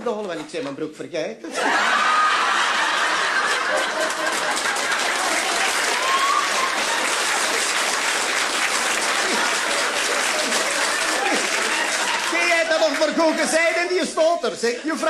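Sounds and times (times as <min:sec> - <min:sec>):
audience laughter: 0:01.5 - 0:05.7, 0:08.9 - 0:11.8
audience applauding: 0:01.6 - 0:14.4.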